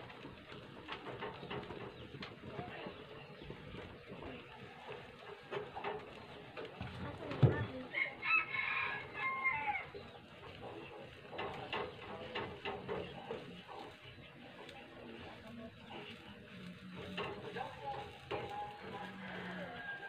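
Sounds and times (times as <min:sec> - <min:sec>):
rooster crowing: 0:07.9 - 0:09.9, 0:18.8 - 0:20.0
stick stirring in tin can: 0:09.9 - 0:20.0.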